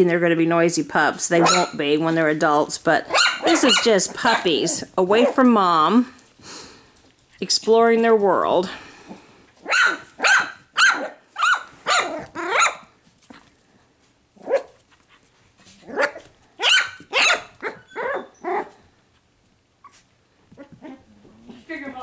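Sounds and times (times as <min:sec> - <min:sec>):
puppies yapping: 0:01.4 - 0:01.8, 0:03.1 - 0:04.5, 0:09.6 - 0:12.9, 0:15.9 - 0:18.9.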